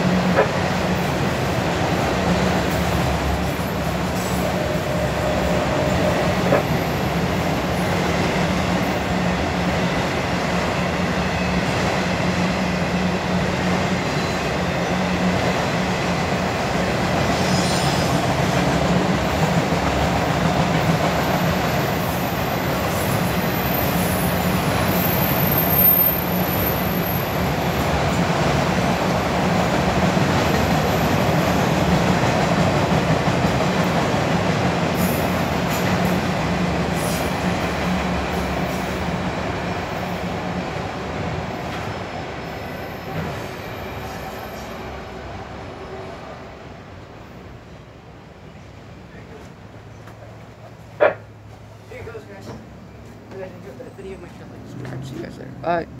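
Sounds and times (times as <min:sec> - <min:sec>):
steel wheels rumbling on rail: 0:00.0 - 0:55.6
faint high wheel squeal: 0:17.3 - 0:18.4, 0:23.0 - 0:27.4, 0:42.6 - 0:45.0.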